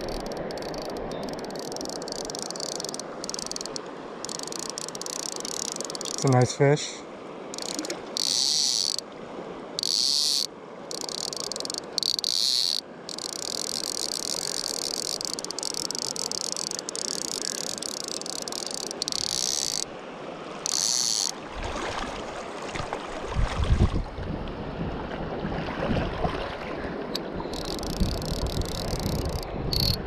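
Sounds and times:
fishing reel drag buzzing: 0.0 - 6.4, 7.5 - 9.0, 9.8 - 19.9, 20.6 - 21.4, 27.5 - 30.0
moving river water: 0.0 - 30.0
wind rumble on microphone: 22.8 - 30.0.

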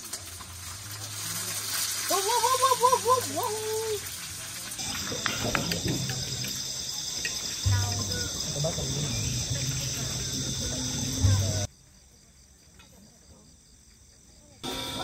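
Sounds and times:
insects trilling: 0.2 - 15.0
low hum: 4.8 - 11.7.

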